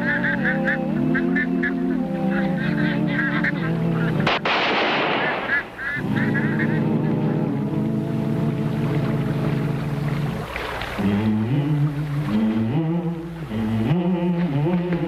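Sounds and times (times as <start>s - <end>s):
waterfowl honking: 0.0s - 7.6s
gunshot with echo: 4.2s - 5.7s.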